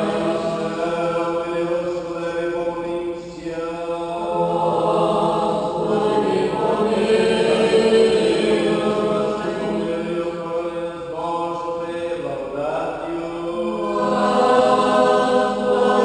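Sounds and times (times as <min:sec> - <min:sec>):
group singing unaccompanied chant: 0:00.0 - 0:16.0.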